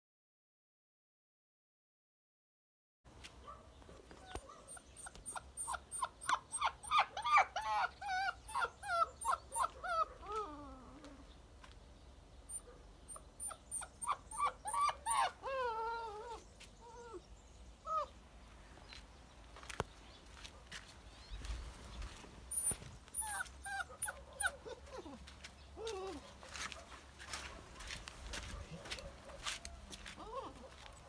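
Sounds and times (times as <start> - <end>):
puppy whining and yelping: 4.1 - 11.3, 12.5 - 18.2, 22.4 - 26.4, 28.6 - 31.0.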